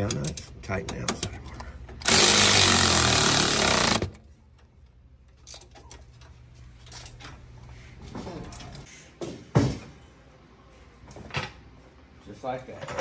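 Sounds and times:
electric ratchet running: 2.0 - 4.2.

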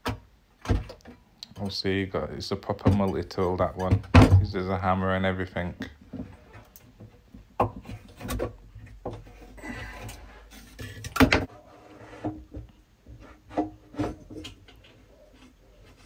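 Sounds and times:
scraping on wood: 6.1 - 16.0.

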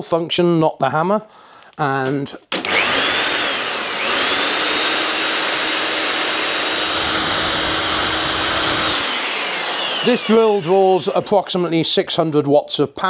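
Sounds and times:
drill motor whining: 2.6 - 11.7.

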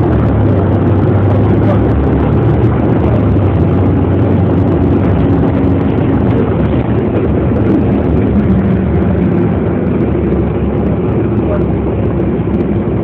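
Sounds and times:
low engine hum: 0.0 - 13.0
vehicle road noise from cabin: 0.0 - 13.0.

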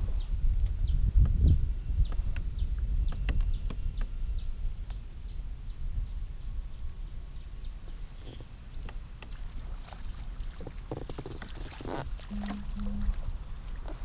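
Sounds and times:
wind rumble on microphone: 0.0 - 14.0
thin high whine: 12.3 - 14.0.

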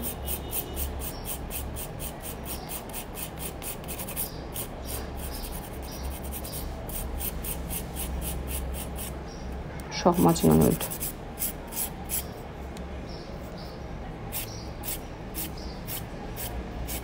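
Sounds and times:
nail file rasping: 0.0 - 9.1.

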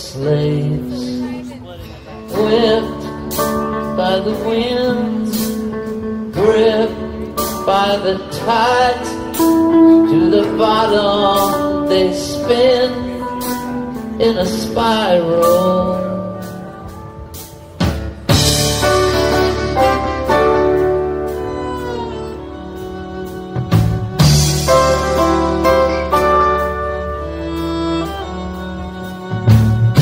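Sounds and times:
sliding lead melody: 0.0 - 30.0
drum or cymbal hits: 17.4 - 21.7.

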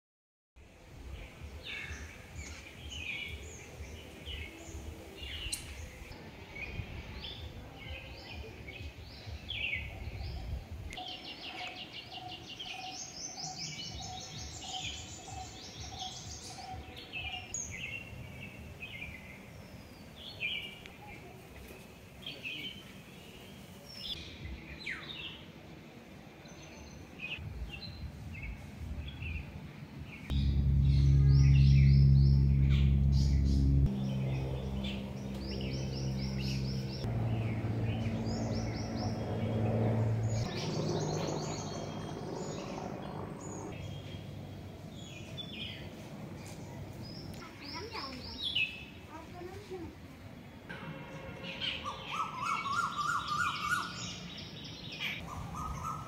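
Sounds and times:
birds chirping and trilling: 1.1 - 25.5, 26.4 - 56.0
low repeated bird note: 30.3 - 44.2, 50.6 - 54.2
low rumble: 30.3 - 47.4.

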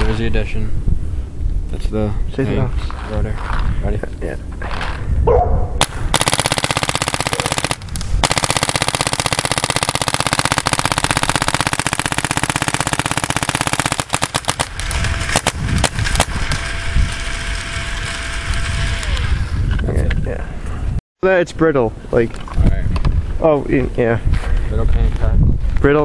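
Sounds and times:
paintball gun rapid firing: 5.8 - 19.4.

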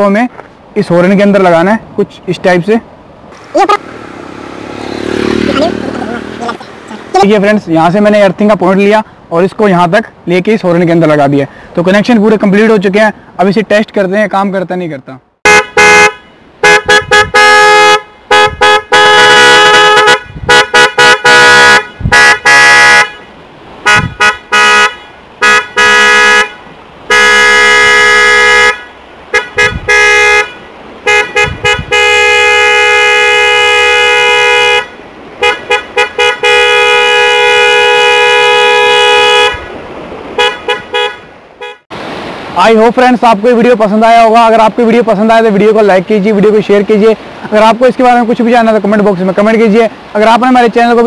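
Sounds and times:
motorcycle horn blasts: 15.4 - 39.7, 40.4 - 41.8.

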